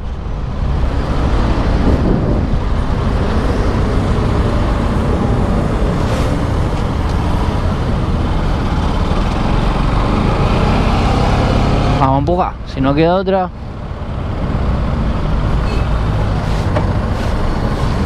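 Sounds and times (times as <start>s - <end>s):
wind rush: 0.0s - 11.9s
road noise: 0.0s - 18.0s.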